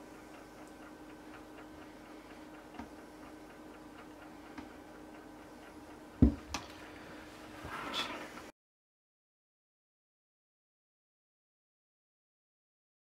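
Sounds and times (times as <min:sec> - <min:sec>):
faint regular ticking: 0:00.0 - 0:07.6
kitchenware knocking on table: 0:06.2 - 0:06.6.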